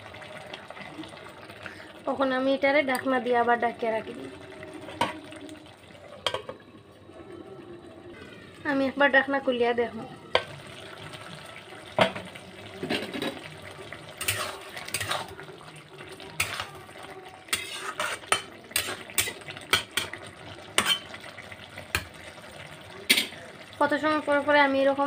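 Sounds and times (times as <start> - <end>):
metal spatula scraping a pot: 14.2 - 15.4, 16.4 - 16.9, 17.5 - 20.2, 20.8 - 21.2.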